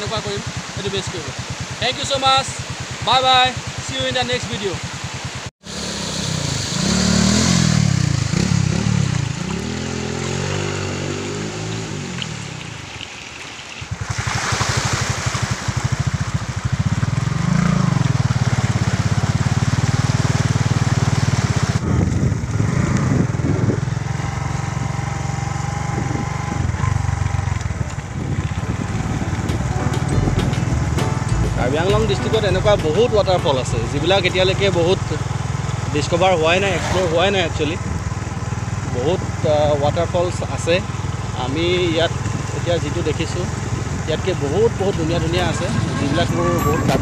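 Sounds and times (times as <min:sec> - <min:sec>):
water splashing around wheels: 0:00.0 - 0:47.0
motorbike engine running: 0:15.4 - 0:47.0.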